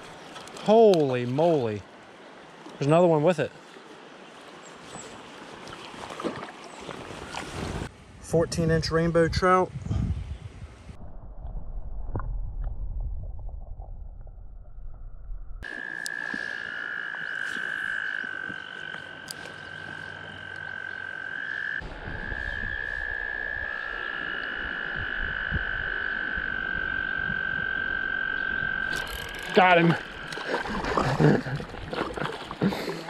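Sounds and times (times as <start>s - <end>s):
moving water: 0.0s - 8.1s, 15.6s - 25.1s, 25.9s - 33.0s
muffled underwater river rumble: 10.7s - 15.6s
frogs trilling: 15.6s - 31.2s.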